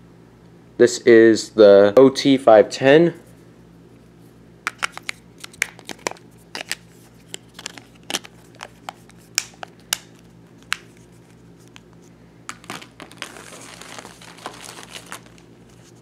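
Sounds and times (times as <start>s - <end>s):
steady low hum: 0.0s - 16.0s
plastic bag rustling: 12.5s - 16.0s.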